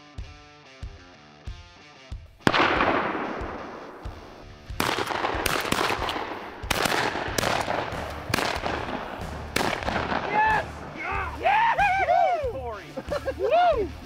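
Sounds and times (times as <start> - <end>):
shotgun shot: 2.4 - 10.9.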